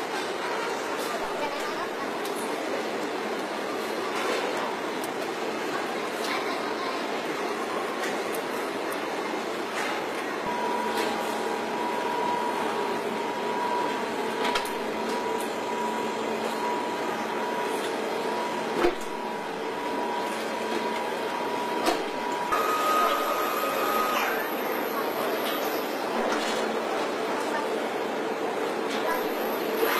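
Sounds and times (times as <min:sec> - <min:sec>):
machinery whining: 0:10.5 - 0:25.6.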